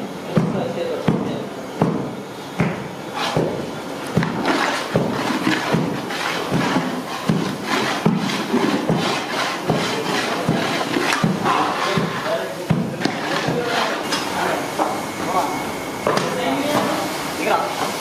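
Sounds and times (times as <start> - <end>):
metal ladle scraping a pan: 3.1 - 3.4, 4.3 - 12.3, 13.0 - 14.3.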